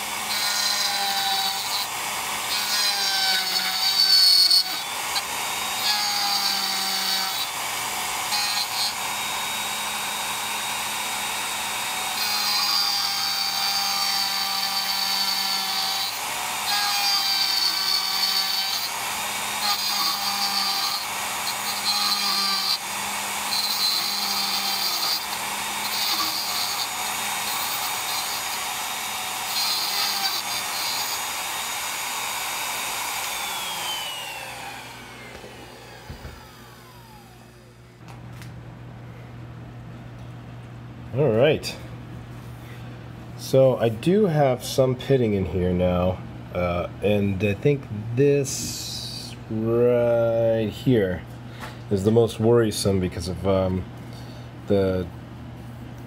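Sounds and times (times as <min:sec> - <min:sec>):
router milling metal: 0:00.0 - 0:37.7.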